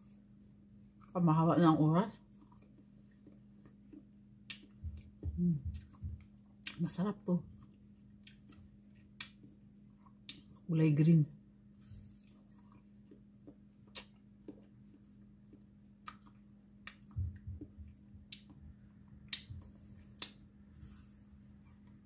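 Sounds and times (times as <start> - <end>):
faint steady hum: 0.0 - 22.0
wet mouth smacks: 2.5 - 4.8, 13.9 - 14.6, 16.0 - 17.2.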